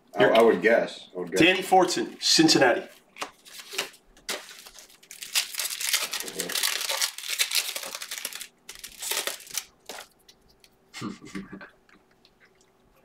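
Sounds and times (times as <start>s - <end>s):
wrapper tearing and crinkling: 3.2s - 10.2s.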